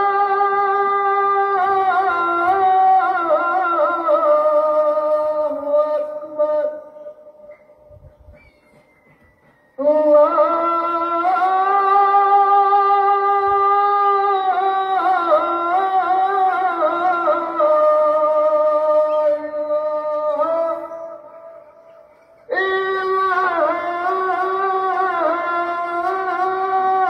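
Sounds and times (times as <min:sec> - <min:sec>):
man chanting call to prayer: 0:00.0 - 0:07.9, 0:09.7 - 0:27.0.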